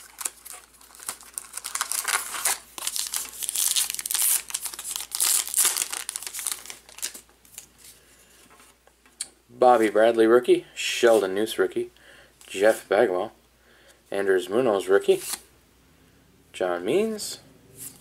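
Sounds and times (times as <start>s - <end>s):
foil wrapper crinkling: 0.0s - 7.7s.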